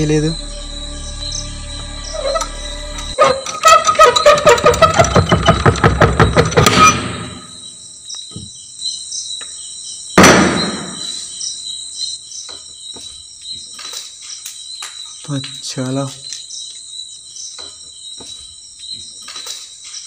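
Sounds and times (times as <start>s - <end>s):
crickets chirping: 0.0s - 20.0s
door swinging open with thud: 2.2s - 7.6s
rapid loud rattling: 3.0s - 7.5s.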